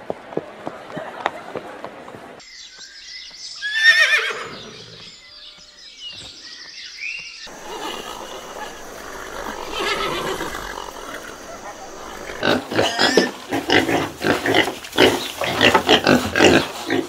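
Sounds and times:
horse whinnying: 3.6 - 5.0, 7.5 - 13.3.

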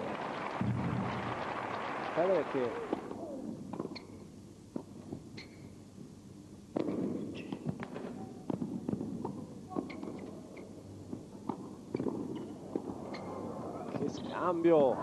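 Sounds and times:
low crowd murmur: 7.9 - 15.0.

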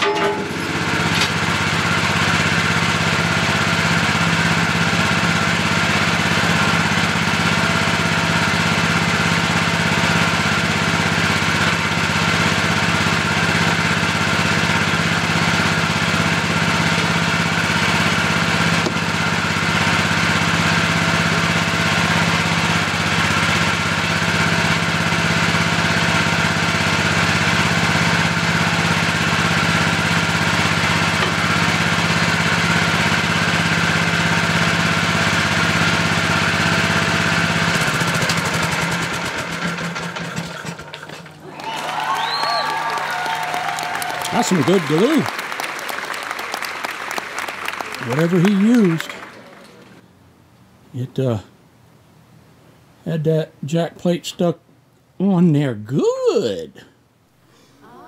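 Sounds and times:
machine engine idling: 0.0 - 42.6, 43.3 - 50.0.

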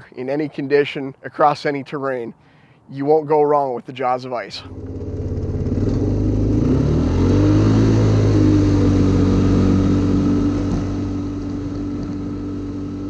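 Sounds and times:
atv engine accelerating: 4.6 - 13.0.

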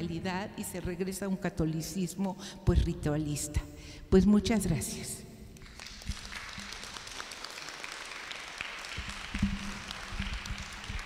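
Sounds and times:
small audience applauding: 5.6 - 11.0.

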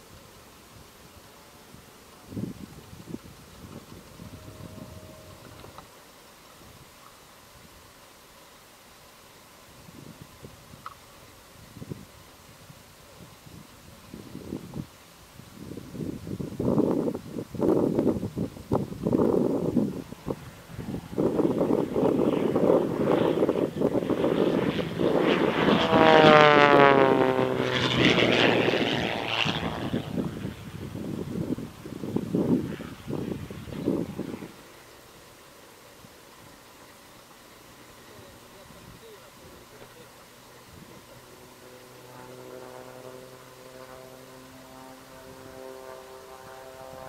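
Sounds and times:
propeller airplane passing by: 0.0 - 5.9, 16.0 - 47.0
steady engine hum: 17.7 - 47.0.

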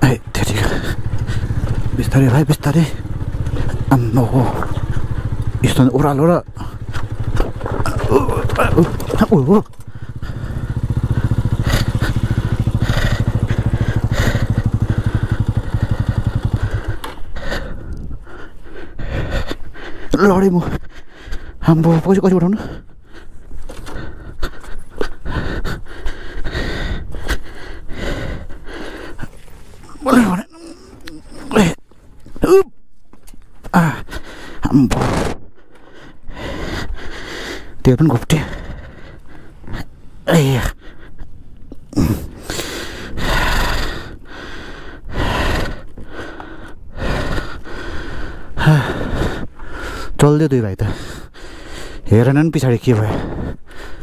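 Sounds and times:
steady low rumble: 0.0 - 21.9, 33.9 - 50.0
person breathing hard: 0.5 - 2.0, 9.8 - 21.7, 22.5 - 31.8, 33.7 - 34.8, 35.5 - 50.2, 50.8 - 52.3, 52.9 - 54.0
person grunting: 7.8 - 16.9, 29.8 - 31.8, 32.4 - 32.8, 41.8 - 42.6.

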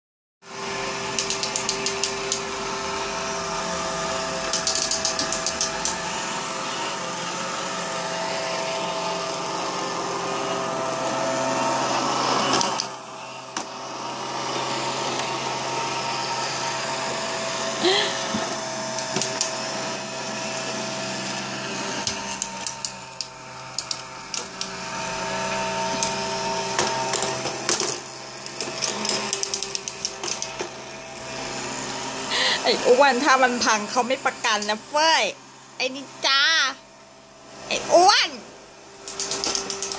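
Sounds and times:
robot vacuum cleaner hum: 0.5 - 39.9.

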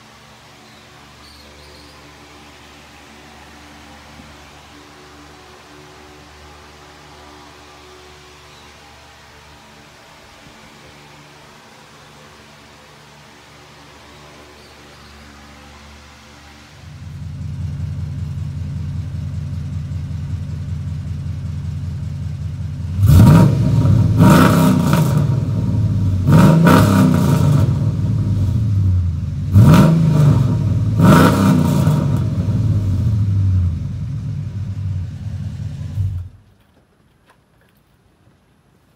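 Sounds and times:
engine idling with deep exhaust: 16.7 - 36.4
engine revving: 22.7 - 36.4.

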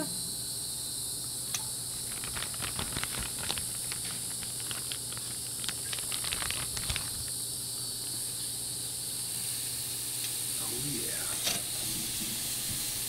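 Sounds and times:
crickets chirping: 0.0 - 11.7
fat crackling and popping: 1.5 - 7.4
meat sizzling on a grill: 9.3 - 13.0.

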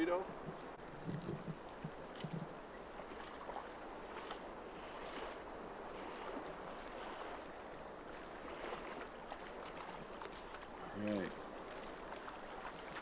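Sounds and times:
river current over riffles: 0.0 - 13.0.

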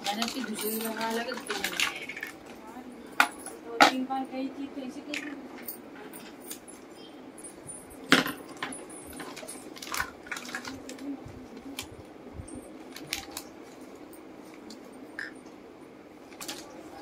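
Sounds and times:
plastic bag rustling: 8.5 - 11.9.

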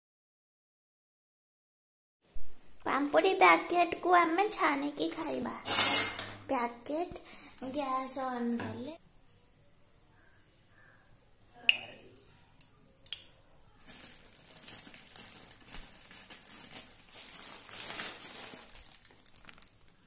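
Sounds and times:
plastic packet crinkling: 13.8 - 20.0.

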